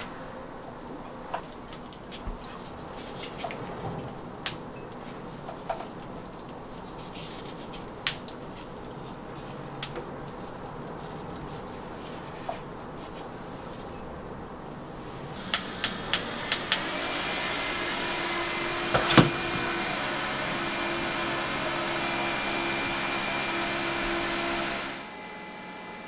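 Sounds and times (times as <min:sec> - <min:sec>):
electric fan whirring: 0:07.9 - 0:26.0
fan switch clicks: 0:15.4 - 0:16.9.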